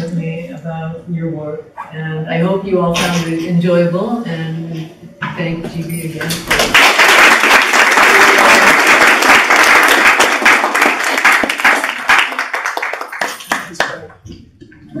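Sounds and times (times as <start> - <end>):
audience applauding: 6.5 - 14.1.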